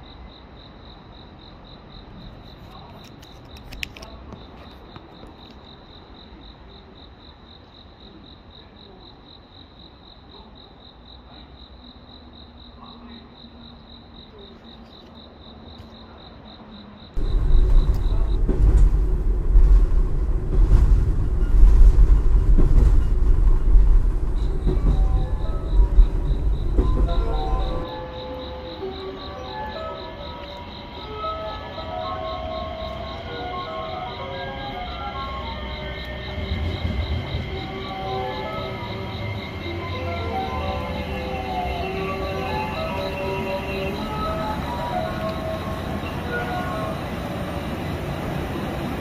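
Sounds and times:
insects chirping in a trill: 0:00.0 - 0:49.0
loud low rumble: 0:17.2 - 0:27.8, 0:36.1 - 0:48.2
station ambience: 0:17.2 - 0:49.0.

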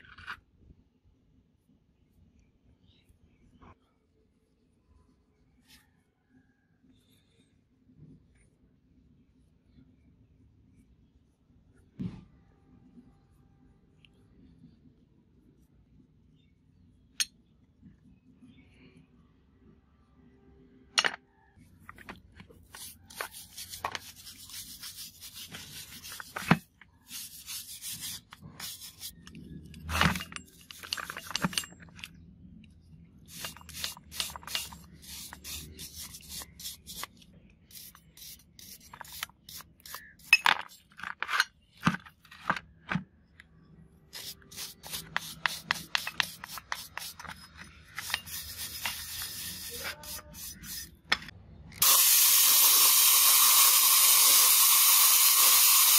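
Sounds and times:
wooden stick scraping metal: 0:21.9 - 0:32.1, 0:33.3 - 0:37.1, 0:37.7 - 0:42.6, 0:44.2 - 0:51.3.

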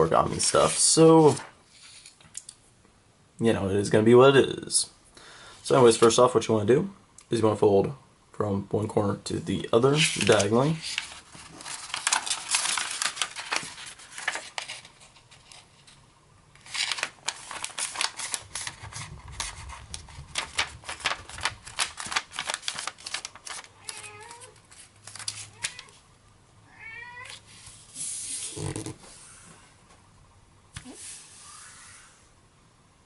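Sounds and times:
paper rustling and crinkling: 0:09.8 - 0:16.0, 0:16.6 - 0:25.9
cat meowing: 0:23.8 - 0:24.6, 0:25.5 - 0:26.0, 0:26.6 - 0:27.4.

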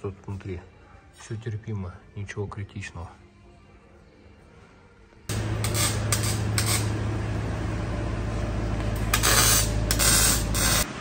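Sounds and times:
power tool buzzing and hissing: 0:05.3 - 0:07.1, 0:09.0 - 0:10.9.

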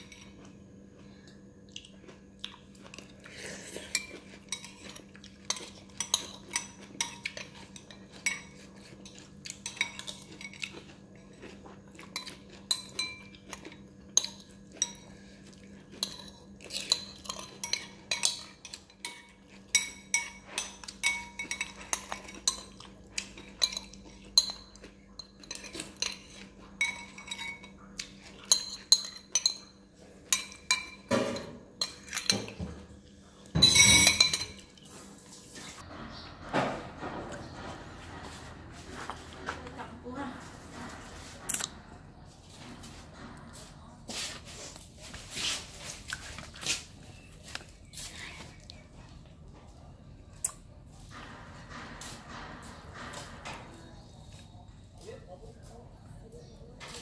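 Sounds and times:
metal spoon clinking against bowl: 0:03.9 - 0:15.1, 0:15.9 - 0:32.6, 0:33.6 - 0:34.7.

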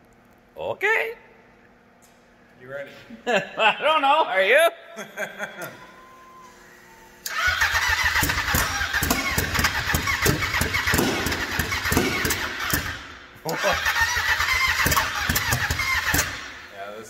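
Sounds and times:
snowmobile engine cranking: 0:07.2 - 0:16.5
engine sputtering and backfiring: 0:07.3 - 0:16.7.

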